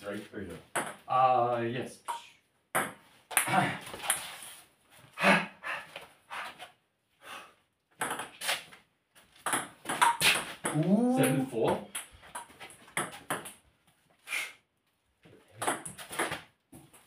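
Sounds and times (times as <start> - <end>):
ping-pong ball hitting bats and table: 0.7 - 1.1, 2.0 - 4.3, 8.0 - 8.5, 9.4 - 13.6, 15.6 - 17.0
short vocal sound: 10.7 - 11.5.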